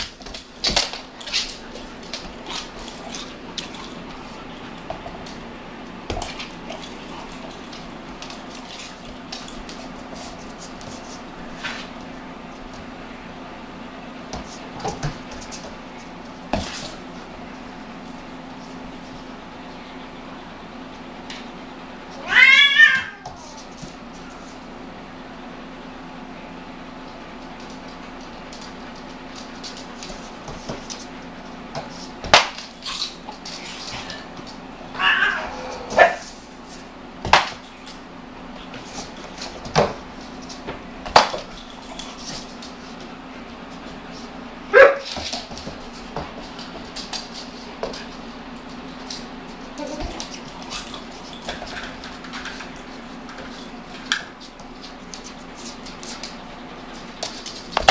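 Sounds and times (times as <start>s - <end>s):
dog claws clicking on wood floor: 0.0s - 5.4s, 45.0s - 57.9s
puppy paws clicking and scuffling: 0.0s - 13.1s, 14.2s - 20.0s, 20.8s - 24.8s, 26.6s - 57.9s
steady low hum: 0.0s - 57.9s.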